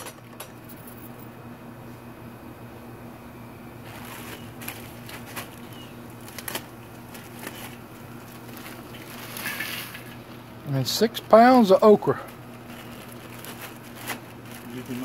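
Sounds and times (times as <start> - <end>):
steady low hum: 0.0 - 15.0
grease sizzling and crackling: 3.8 - 15.0.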